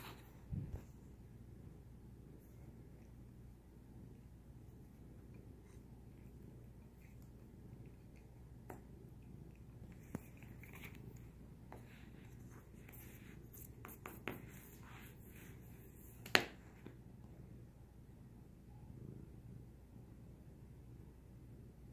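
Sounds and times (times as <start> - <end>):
pencil scratching on paper: 4.8 - 8.4, 9.9 - 16.4.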